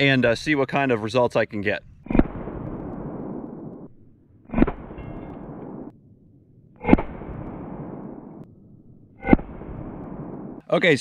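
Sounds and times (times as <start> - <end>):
pistol shots with echo: 4.5 - 5.9.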